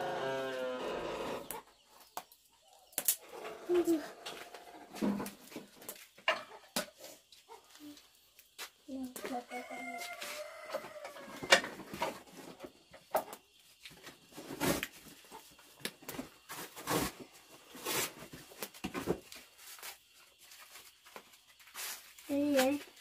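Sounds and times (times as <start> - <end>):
rooster crowing: 9.4 - 11.7.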